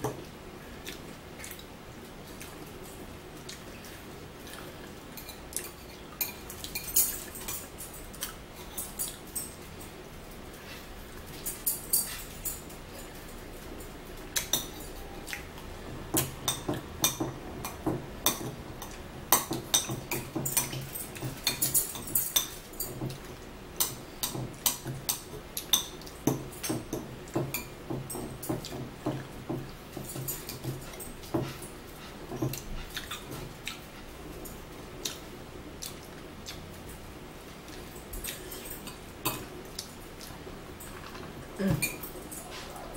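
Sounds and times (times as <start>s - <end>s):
chewing and lip-smacking: 0.8s - 2.7s, 32.5s - 34.0s, 35.0s - 36.7s.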